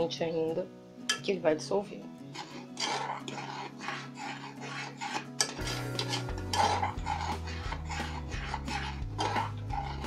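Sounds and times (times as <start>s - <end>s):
metal spoon scraping a saucepan: 2.2s - 10.0s.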